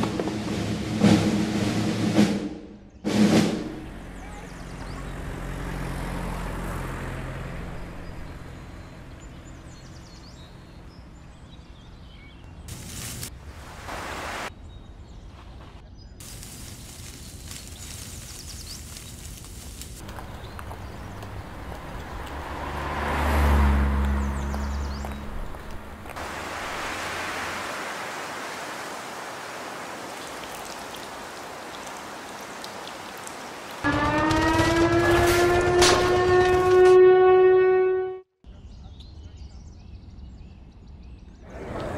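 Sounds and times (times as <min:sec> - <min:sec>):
distant traffic: 0:03.1 - 0:15.4, 0:16.2 - 0:40.8
small birds chirping: 0:03.8 - 0:06.4, 0:07.5 - 0:13.3, 0:14.5 - 0:33.8, 0:38.5 - 0:41.6
steady rain hiss: 0:12.7 - 0:14.5, 0:16.2 - 0:22.6, 0:25.6 - 0:33.9.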